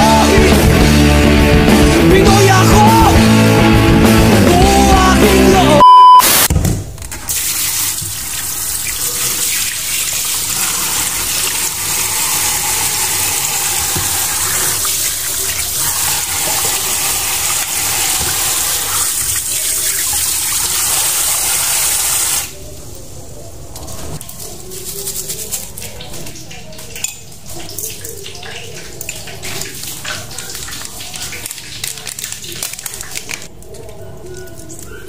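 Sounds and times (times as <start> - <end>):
tap water splashing in sink: 7.9 - 20.8, 25.8 - 33.5.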